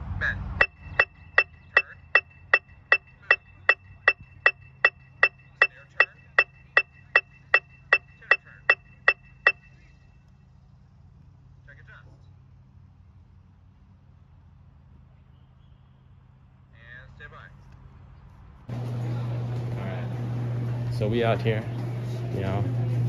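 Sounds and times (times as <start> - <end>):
electronic metronome beeping: 0.6 - 9.8.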